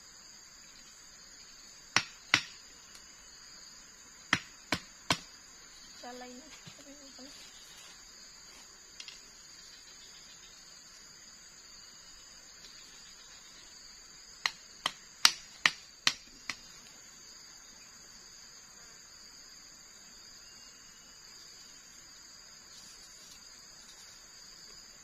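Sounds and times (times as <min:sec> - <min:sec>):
insect chirring: 0:00.0 - 0:25.0
sharp knocks on bamboo stake: 0:02.0 - 0:02.6, 0:04.3 - 0:05.3, 0:14.4 - 0:16.7.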